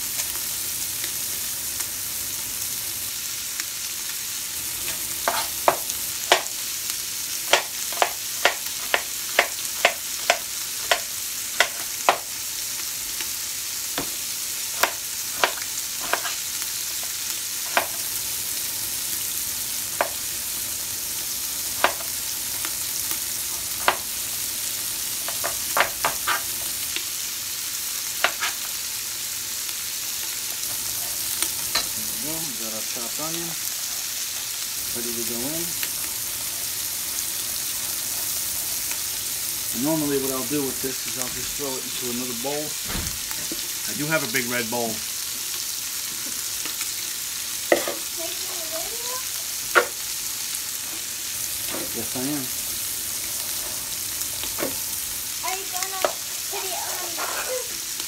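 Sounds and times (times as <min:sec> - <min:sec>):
meat sizzling in a pot: 0:00.0 - 0:58.0
knife chopping on cutting board: 0:05.2 - 0:06.5, 0:07.5 - 0:12.3, 0:14.8 - 0:16.4.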